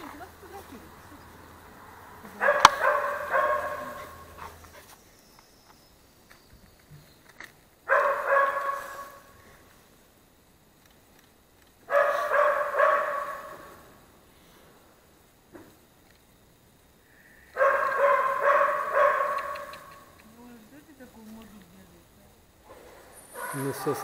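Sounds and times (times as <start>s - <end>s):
dog barking: 2.4s - 4.6s, 7.9s - 9.3s, 11.9s - 13.8s, 17.6s - 20.1s, 23.3s - 24.0s
sharp click: 19.3s - 20.4s.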